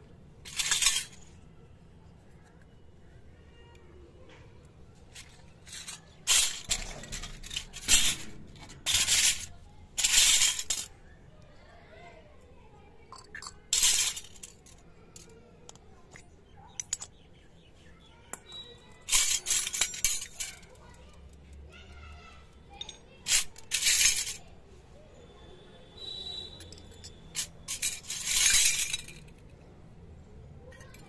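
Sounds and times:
metal toy cups clinking: 0:00.4 - 0:01.5, 0:05.1 - 0:11.2, 0:13.1 - 0:17.2, 0:18.3 - 0:21.4, 0:22.7 - 0:24.5, 0:26.0 - 0:29.6, 0:30.6 - 0:31.0
metal scraping on concrete: 0:05.2 - 0:11.0.

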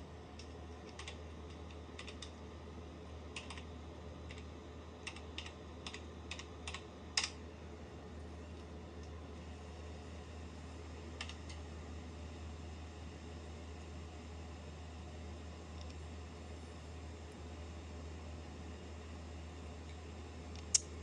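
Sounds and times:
steady low hum: 0:00.0 - 0:21.0
computer keyboard typing: 0:00.8 - 0:02.4, 0:03.3 - 0:03.7, 0:04.3 - 0:07.4.

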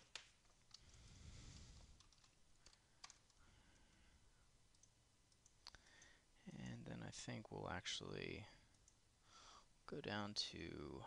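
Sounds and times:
computer mouse clicks: 0:04.7 - 0:06.1.

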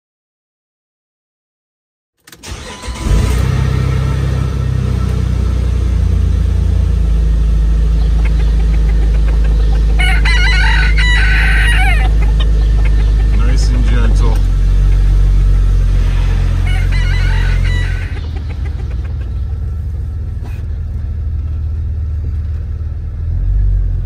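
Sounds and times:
vehicle engine rumbling: 0:02.3 - 0:24.0
rooster crowing: 0:09.8 - 0:13.3, 0:16.4 - 0:18.5.

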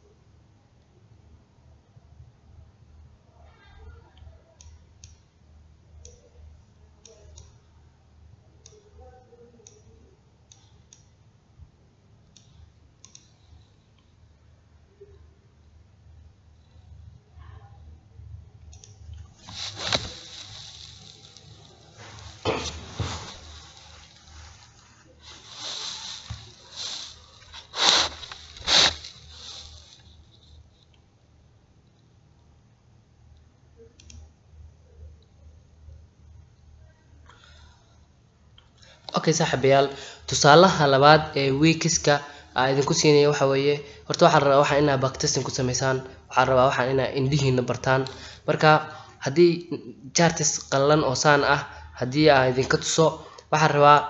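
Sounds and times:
computer mouse clicks: 0:12.3 - 0:14.1, 0:33.9 - 0:34.3
person breathing through nose: 0:19.4 - 0:30.1.

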